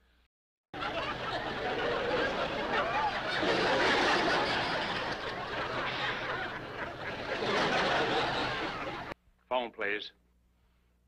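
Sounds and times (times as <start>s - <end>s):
audience laughing: 0.8s - 9.2s.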